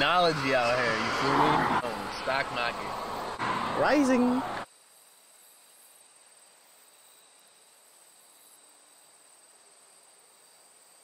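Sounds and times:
faint steady hiss: 1.8 - 11.0.

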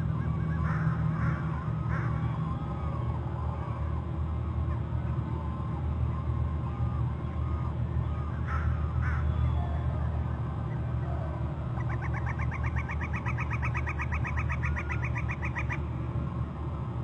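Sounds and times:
bird calling: 6.6 - 15.9.

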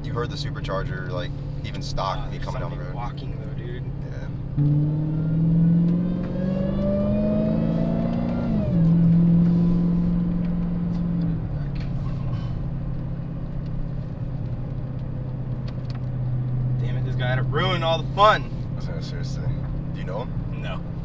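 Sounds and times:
car engine revving: 0.0 - 21.0
supercharger whine: 4.3 - 13.9.

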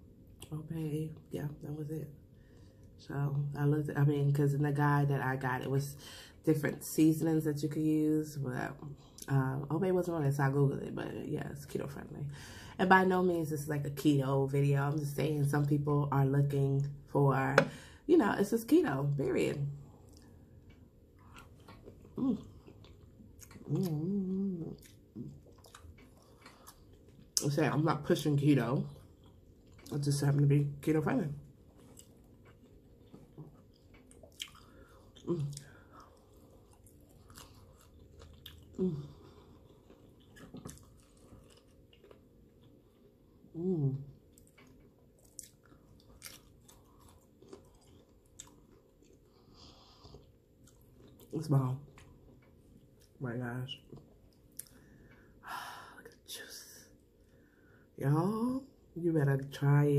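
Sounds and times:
person chewing: 19.8 - 27.4, 28.9 - 30.0, 31.4 - 43.5, 44.1 - 53.2, 53.8 - 55.4.

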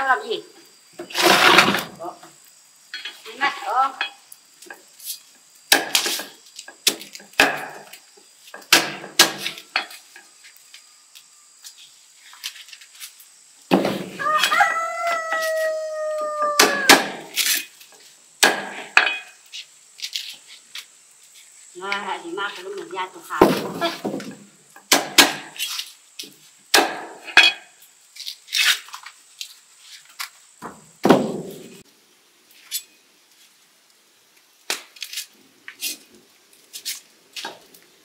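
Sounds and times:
corn cobs being husked: 0.8 - 24.0, 31.6 - 38.0
rooster crowing: 14.2 - 17.0.

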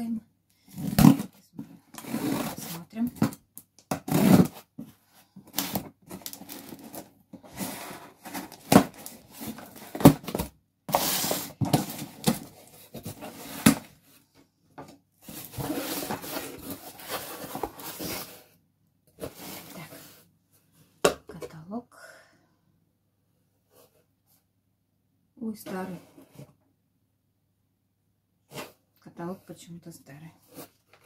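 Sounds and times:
cardboard rustling: 4.0 - 14.2, 14.8 - 18.5.

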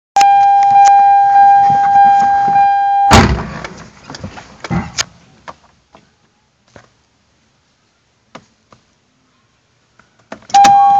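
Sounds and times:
car warning buzzer: 0.2 - 3.2, 10.6 - 10.9
car door shutting: 1.4 - 3.8, 10.3 - 10.9.

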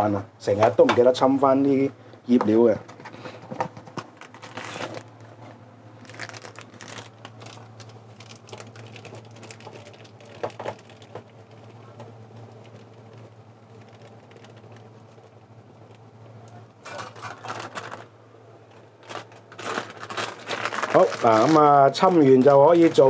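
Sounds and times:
steady low hum: 0.0 - 23.0
crinkling: 2.8 - 23.0.

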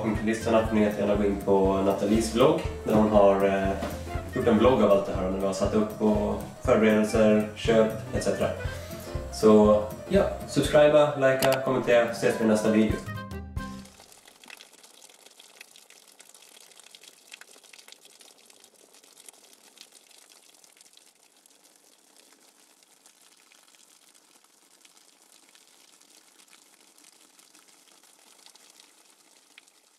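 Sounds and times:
shower water spraying: 0.9 - 7.5
small water splashes: 13.8 - 29.9.

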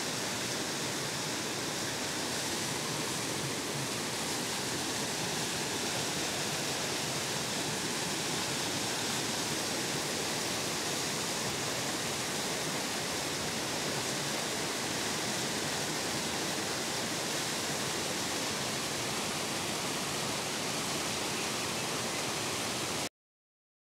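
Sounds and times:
water rushing over rocks: 0.0 - 23.1.

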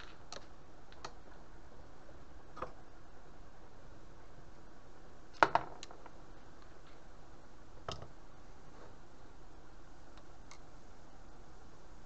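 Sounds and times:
steady low hiss: 0.0 - 12.0.

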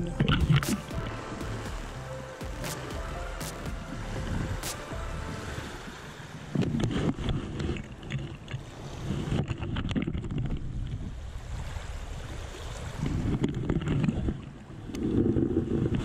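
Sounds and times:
wind gusting on microphone: 5.2 - 16.0.

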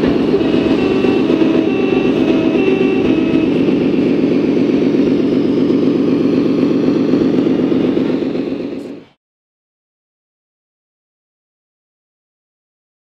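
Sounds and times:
truck engine idling: 0.0 - 9.1.

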